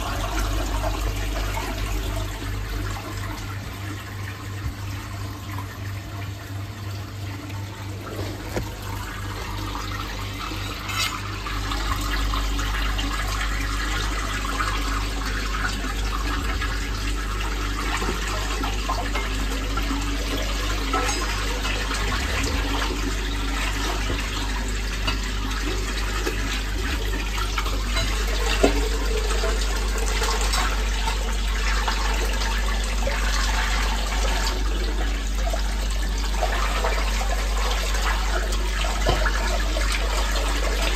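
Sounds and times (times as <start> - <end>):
water gushing down a drain: 0.0 - 40.9.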